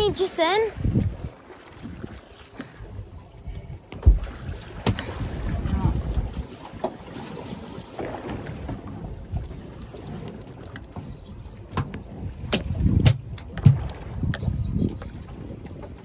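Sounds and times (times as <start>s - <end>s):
wind on microphone: 0.0s - 6.6s, 7.2s - 16.0s
water washing against boat: 0.0s - 16.0s
sharp knocks and thuds: 3.9s - 5.1s, 11.7s - 13.9s.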